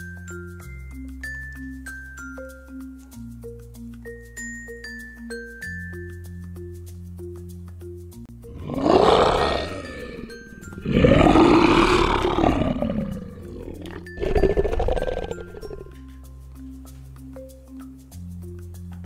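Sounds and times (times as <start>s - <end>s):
children's music with mallet notes: 0.0s - 8.5s, 13.8s - 19.0s
lion roaring: 8.5s - 15.9s.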